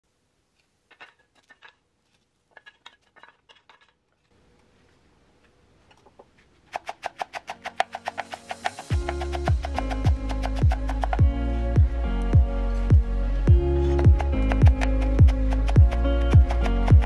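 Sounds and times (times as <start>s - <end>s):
faint steady hiss: 0.0s - 6.8s
knife chopping on wooden board: 6.7s - 11.2s, 14.1s - 17.0s.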